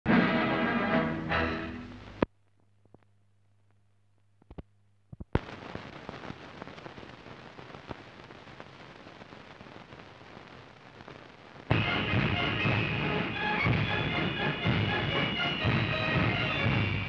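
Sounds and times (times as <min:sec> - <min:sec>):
music: 0:00.1 - 0:02.1, 0:11.7 - 0:17.0
film soundtrack crackling hiss: 0:00.1 - 0:17.0.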